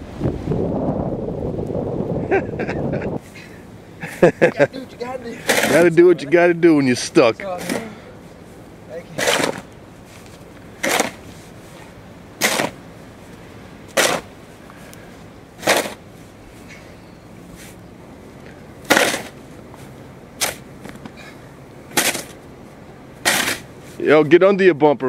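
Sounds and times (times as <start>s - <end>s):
snow shovel scraping snow: 4.0s - 6.4s, 9.0s - 12.8s, 13.9s - 14.3s, 15.1s - 16.9s, 17.5s - 17.8s, 18.8s - 22.4s, 23.2s - 24.2s.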